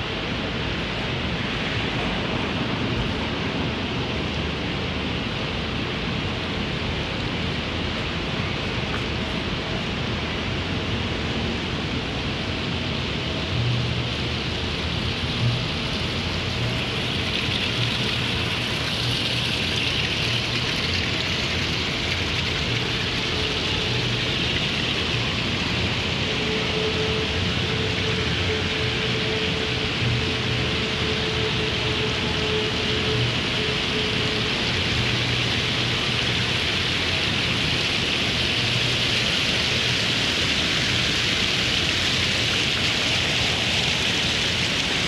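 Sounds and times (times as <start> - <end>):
fountain water splashing: 0.0 - 45.0.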